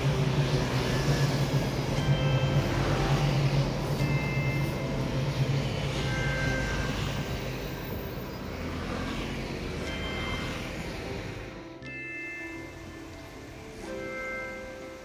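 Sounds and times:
train rumbling across bridge: 0.0s - 11.8s.

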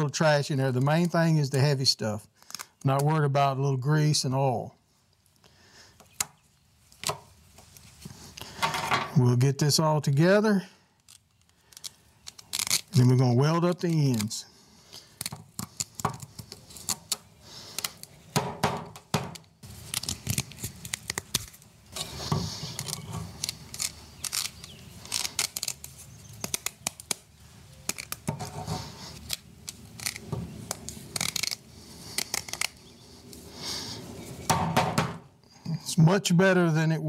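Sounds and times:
steel wire rope clicking: 11.0s - 13.1s, 13.7s - 18.2s, 19.4s - 33.4s
wire rope scraping: 11.0s - 14.4s, 15.0s - 18.2s, 19.6s - 34.5s.

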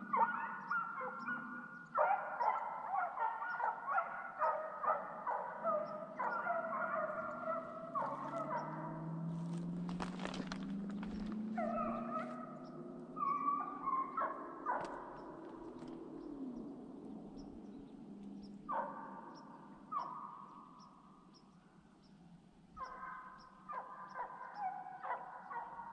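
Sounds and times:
hounds baying and howling: 0.0s - 21.6s, 22.7s - 25.9s.

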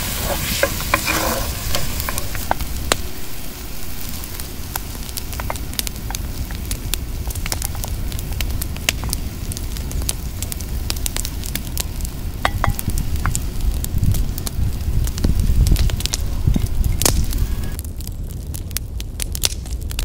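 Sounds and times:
food sizzling in oil: 0.0s - 17.8s
oil popping and crackling: 0.0s - 20.0s.

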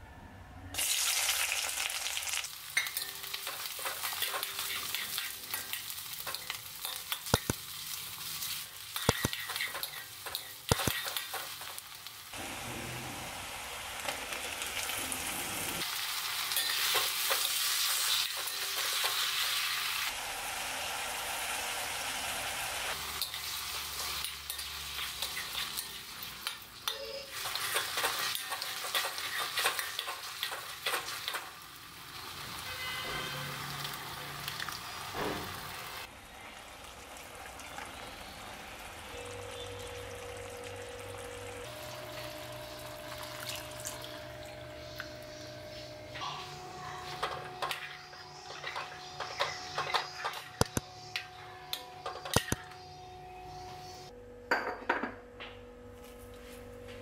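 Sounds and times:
food sizzling in hot oil: 0.8s - 45.8s
metal spatula tapping and scraping: 2.8s - 7.6s, 9.0s - 11.8s.

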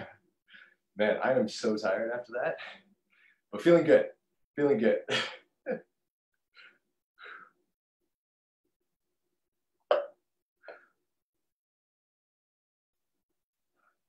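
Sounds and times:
man breathing heavily: 6.5s - 7.6s
man gulping water: 9.8s - 10.9s.

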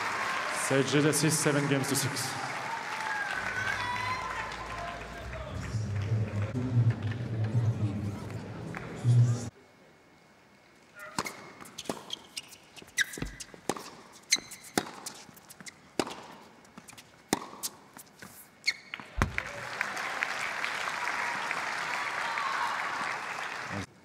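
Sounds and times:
crowd applauding: 0.0s - 9.5s, 18.9s - 23.9s
racket striking tennis ball: 11.1s - 12.3s, 13.0s - 16.5s, 17.2s - 18.3s
ball bouncing on hard court: 13.0s - 16.4s, 19.2s - 19.4s.

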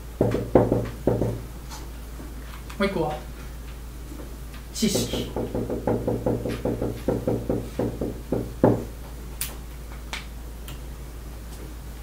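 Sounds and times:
marker tapping on whiteboard: 0.2s - 1.4s, 4.9s - 8.9s.

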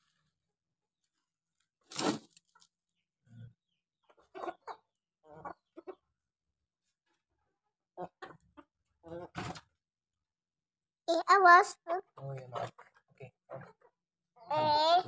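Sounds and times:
chickens clucking: 3.6s - 6.2s, 8.0s - 9.7s, 12.1s - 14.0s.

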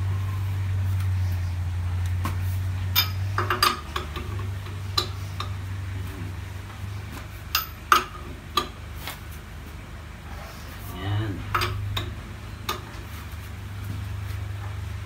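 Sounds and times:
steady low hum: 0.0s - 15.0s
lug wrench clinking: 2.9s - 5.6s, 7.5s - 8.8s, 11.5s - 12.9s.

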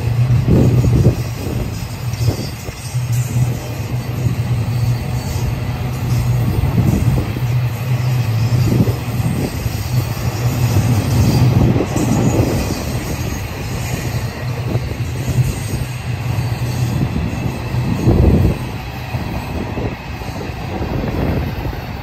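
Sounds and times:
train cars rattling: 0.0s - 22.0s
train wheels rolling on track: 0.0s - 22.0s.

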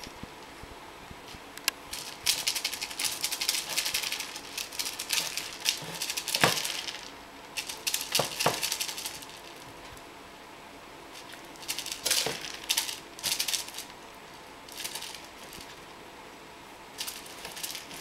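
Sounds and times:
toy mice rattling and clicking: 1.9s - 9.8s, 11.2s - 14.0s, 14.7s - 15.8s, 17.0s - 18.0s.

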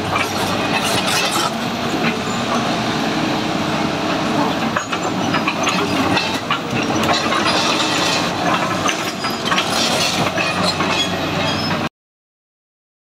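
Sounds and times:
crawler tracks clanking: 0.0s - 11.9s
diesel engine running: 0.0s - 11.9s.

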